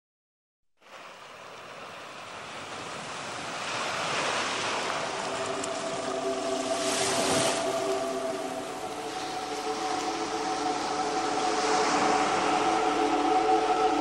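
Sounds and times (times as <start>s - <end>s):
rushing noise: 4.6s - 14.0s.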